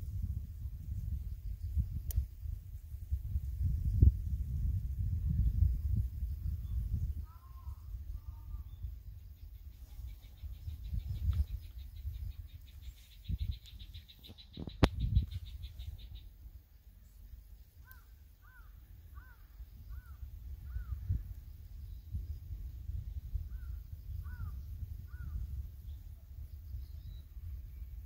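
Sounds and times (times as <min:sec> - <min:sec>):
wind rumbling on microphone: 0:00.0 - 0:28.0
bird calling: 0:09.8 - 0:16.3, 0:17.8 - 0:21.0.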